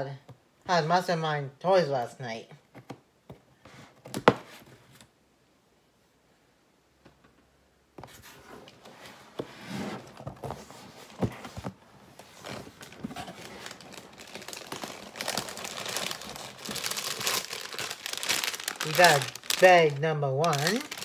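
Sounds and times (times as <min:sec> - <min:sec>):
cardboard box being opened: 0:08.2 - 0:19.8, 0:20.5 - 0:21.0
plastic bags rustling: 0:09.9 - 0:21.0.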